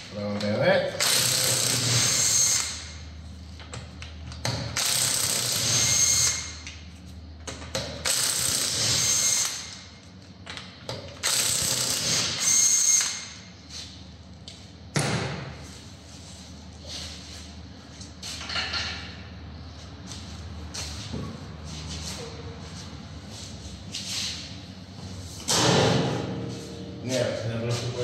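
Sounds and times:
impact wrench hammering with whine: 0.9 - 3.1, 3.7 - 6.8, 7.4 - 13.6.

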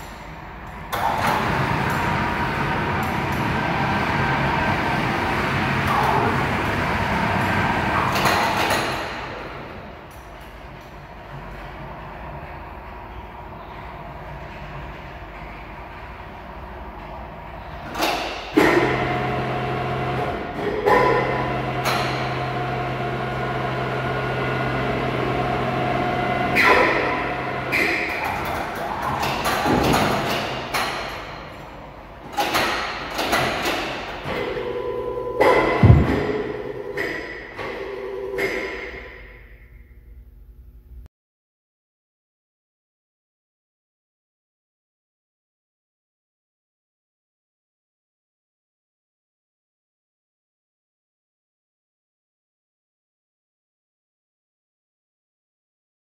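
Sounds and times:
overhead crane trolley droning: 18.8 - 27.8, 34.4 - 39.5
brief knock: 35.8 - 36.5.

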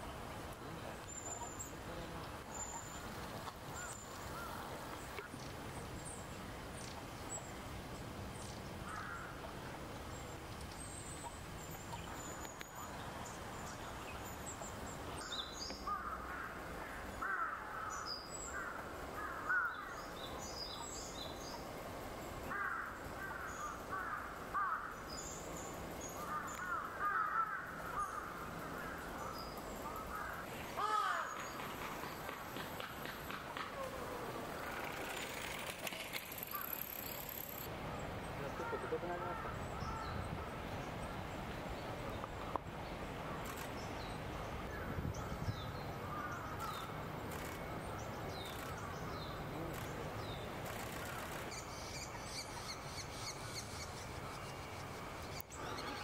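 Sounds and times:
birds calling: 0.9 - 7.6, 8.4 - 56.0.

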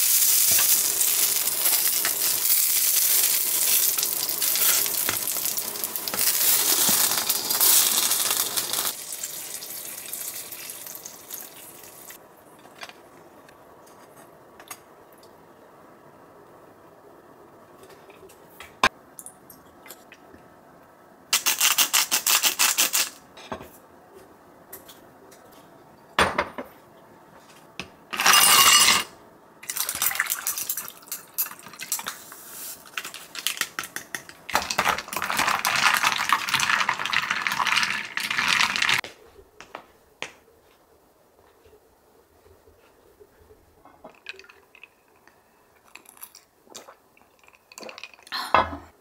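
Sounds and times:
ice cubes clinking in a glass cup: 28.2 - 29.0.

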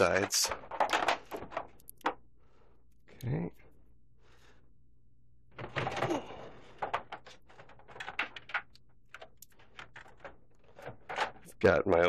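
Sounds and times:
objects clattering on desk: 5.6 - 11.5.

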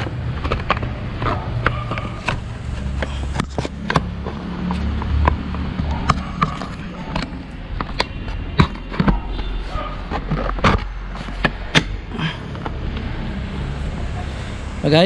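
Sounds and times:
hollow plastic pipe knocks and scrapes: 0.0 - 11.9.

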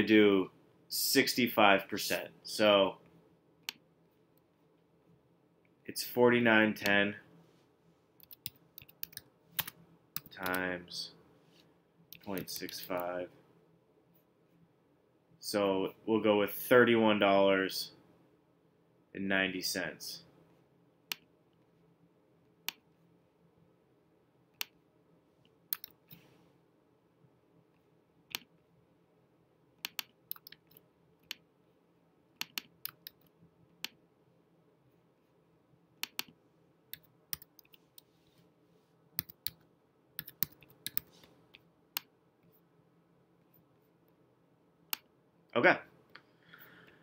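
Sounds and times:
keyboard typing: 8.2 - 10.6, 25.7 - 26.1, 29.8 - 31.4, 32.4 - 34.0, 36.0 - 37.8, 39.2 - 39.6, 40.2 - 41.1
mouse clicks: 22.6 - 22.8, 28.3 - 28.5, 29.8 - 31.4, 32.4 - 34.0, 36.0 - 38.1.

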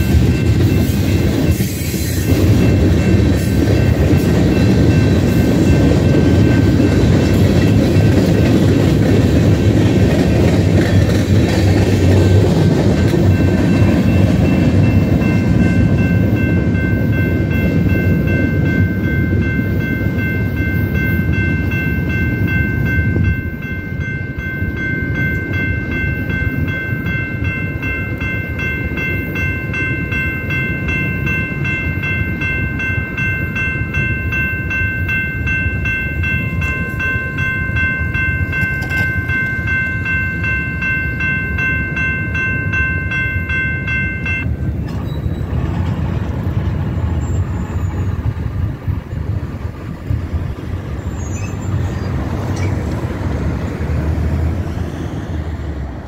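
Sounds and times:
crossing warning bells ringing: 0.0 - 56.0
freight train rumbling: 0.0 - 56.0.

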